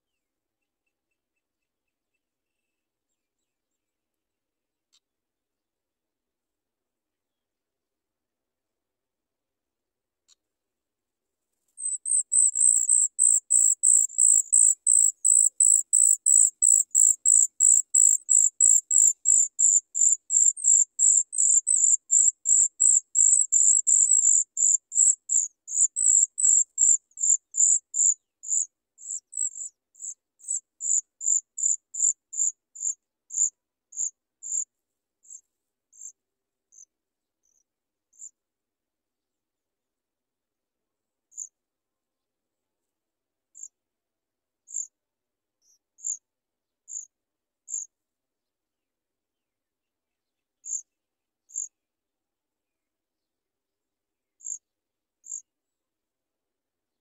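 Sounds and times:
nestlings begging calls: 0:11.8 - 0:24.4.

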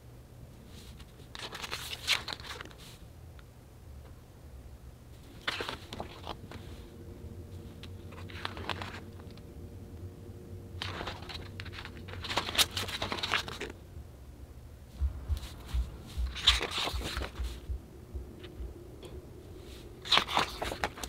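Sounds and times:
book pages rustling: 0:00.7 - 0:03.0, 0:05.2 - 0:06.8, 0:07.5 - 0:09.4, 0:10.8 - 0:13.8, 0:15.0 - 0:17.7, 0:19.6 - 0:21.0
book bumping: 0:15.4 - 0:17.6.

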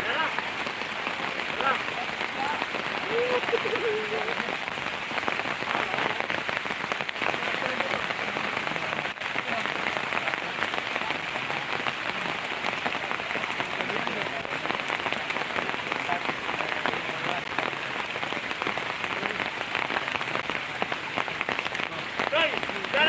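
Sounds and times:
heavy rain: 0:00.0 - 0:23.0
raindrops ticking on surface: 0:00.0 - 0:23.0.

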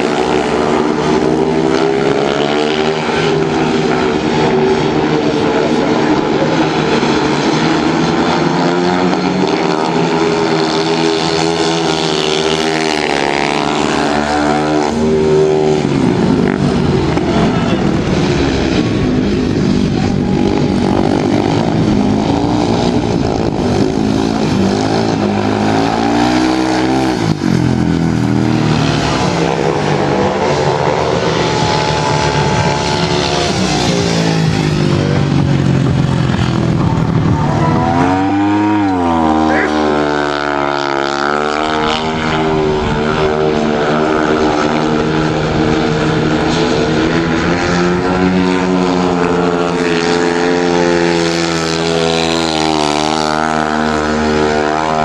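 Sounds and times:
motorcycle engines racing: 0:00.0 - 0:55.0.

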